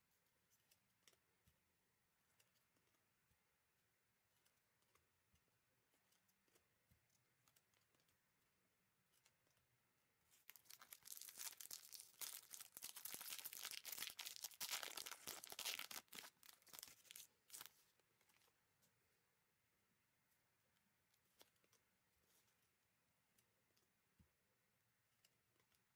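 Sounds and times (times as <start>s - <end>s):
wrapper tearing and crinkling: 10.5s - 17.7s.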